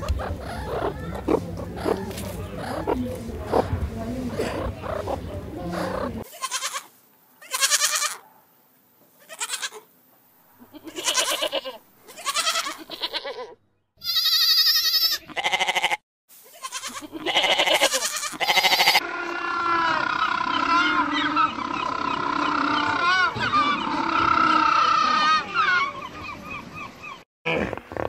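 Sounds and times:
goats bleating: 0:05.8 - 0:08.2, 0:09.2 - 0:09.8, 0:10.6 - 0:21.6.

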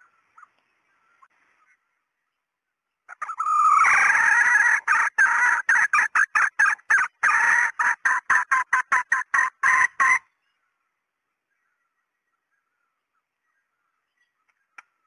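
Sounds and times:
hen cackling and clucking: 0:03.1 - 0:10.3.

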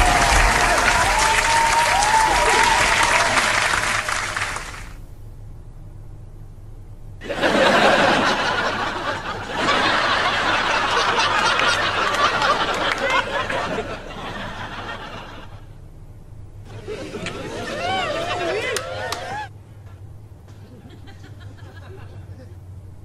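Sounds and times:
low hum: 0:00.0 - 0:23.0
people snickering: 0:07.2 - 0:15.7, 0:16.6 - 0:19.5, 0:20.5 - 0:22.6
people muttering: 0:16.6 - 0:19.6.

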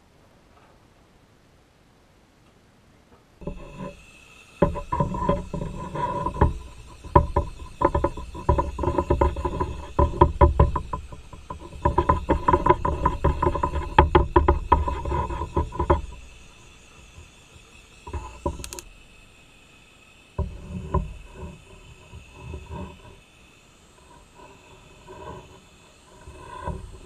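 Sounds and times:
sharp click: 0:18.4 - 0:18.9.

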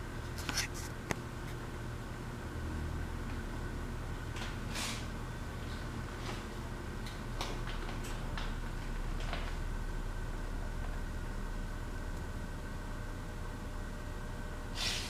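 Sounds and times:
low room hum: 0:00.0 - 0:15.0.

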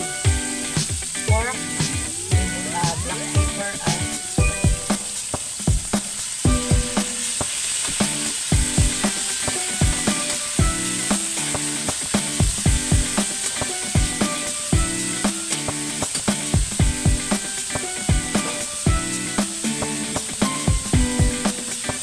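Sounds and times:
background music with steady beat: 0:00.0 - 0:22.0
food sizzling in a wok: 0:00.0 - 0:22.0.

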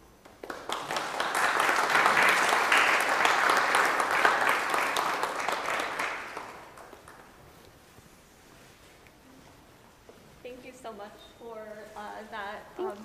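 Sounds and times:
audience applauding: 0:00.2 - 0:07.5.

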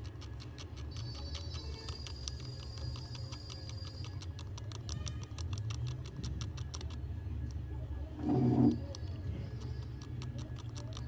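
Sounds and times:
needle scratching circuit board: 0:08.2 - 0:11.0.

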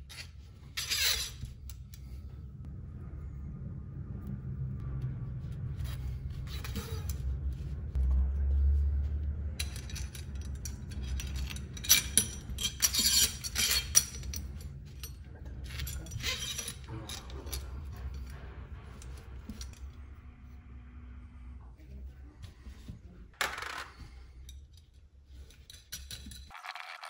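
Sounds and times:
low steady hum: 0:00.0 - 0:26.5
metal parts clinking: 0:09.6 - 0:18.3.

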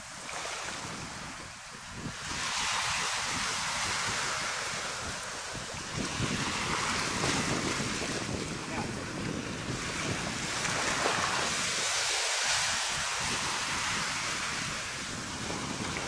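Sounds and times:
waves washing onto beach: 0:00.0 - 0:16.0
wind buffeting microphone: 0:00.0 - 0:16.0.

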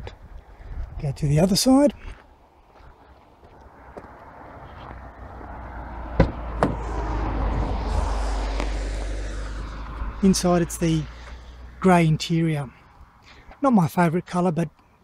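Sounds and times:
rushing noise and low rumble: 0:03.7 - 0:11.8.

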